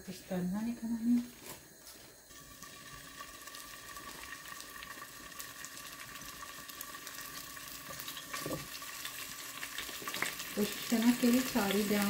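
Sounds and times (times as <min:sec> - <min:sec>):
meat sizzling in hot oil: 0:02.3 - 0:12.0.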